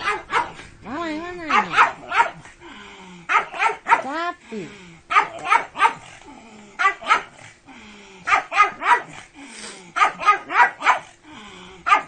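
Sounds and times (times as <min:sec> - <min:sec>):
dog barking: 0:00.0 - 0:00.6, 0:01.5 - 0:02.5, 0:03.3 - 0:04.1, 0:05.1 - 0:06.1, 0:06.8 - 0:07.4, 0:08.3 - 0:09.2, 0:10.0 - 0:11.1.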